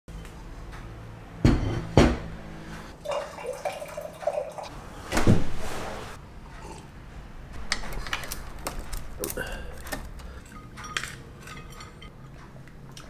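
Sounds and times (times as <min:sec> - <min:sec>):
ceramic plates clinking: 0:10.3 - 0:12.4.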